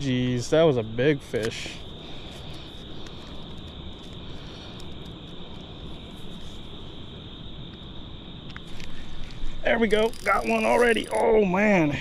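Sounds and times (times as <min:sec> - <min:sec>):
high-pitched insect chorus: 0:00.0 - 0:12.0
faint ticks: 0:02.2 - 0:05.7.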